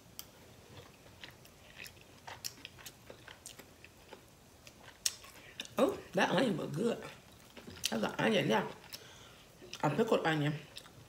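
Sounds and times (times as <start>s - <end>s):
person chewing crunchy food: 0.0s - 6.0s, 7.0s - 9.8s.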